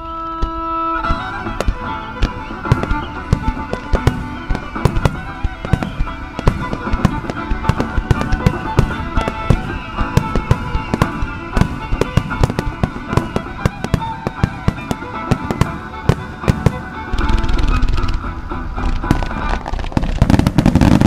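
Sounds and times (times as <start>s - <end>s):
fireworks bursting: 0.0s - 21.0s
music: 0.0s - 21.0s.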